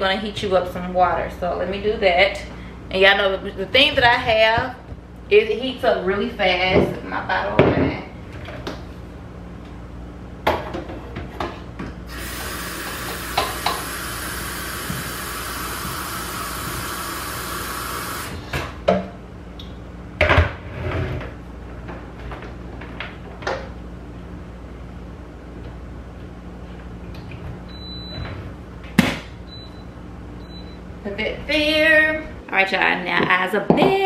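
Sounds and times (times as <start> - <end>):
kitchen tap running: 12.1 - 18.4.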